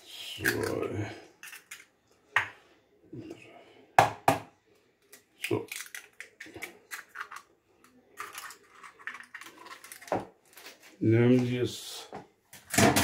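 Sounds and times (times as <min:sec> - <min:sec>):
eggs knocking on plastic bowl: 0:04.0 - 0:04.5
eggshells cracking: 0:05.0 - 0:10.9.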